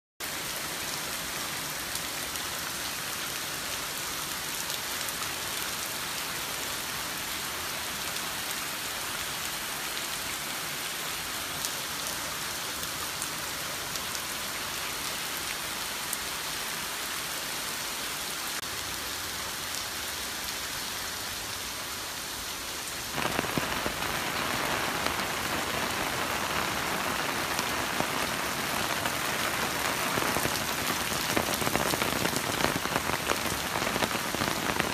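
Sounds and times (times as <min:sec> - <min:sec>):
heavy rain pouring: 0:18.3 - 0:34.9.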